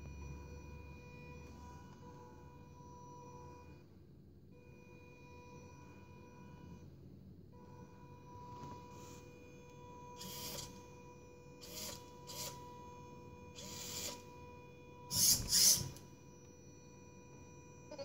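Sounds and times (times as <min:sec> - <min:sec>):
faint steady whine: 0:00.0 - 0:18.0
electric motors running in bursts: 0:09.8 - 0:11.0, 0:11.6 - 0:14.4, 0:15.0 - 0:16.0.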